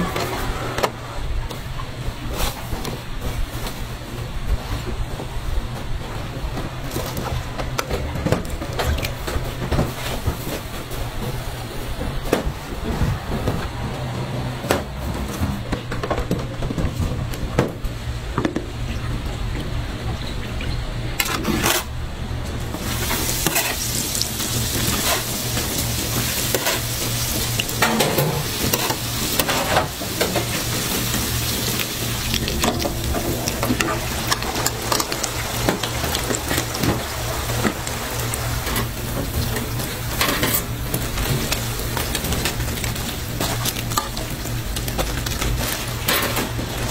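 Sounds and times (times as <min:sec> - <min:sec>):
steady low hum: 0:00.0 - 0:46.9
hot oil sizzling: 0:22.7 - 0:46.9.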